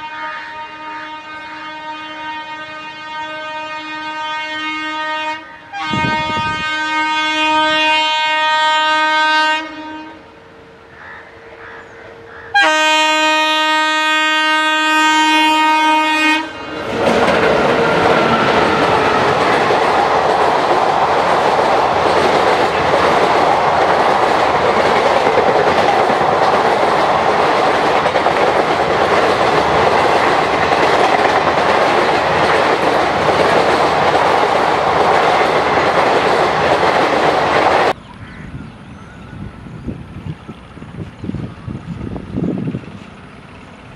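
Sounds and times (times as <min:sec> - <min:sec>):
train horn blasts: 0:00.0 - 0:10.4, 0:12.5 - 0:17.0
train rumbling past: 0:00.0 - 0:43.9.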